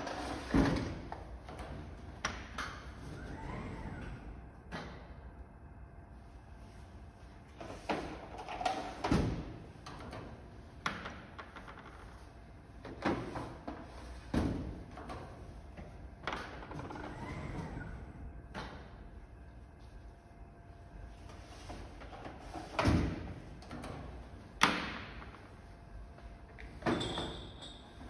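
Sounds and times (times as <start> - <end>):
storage carousel running: 0.0 - 28.0.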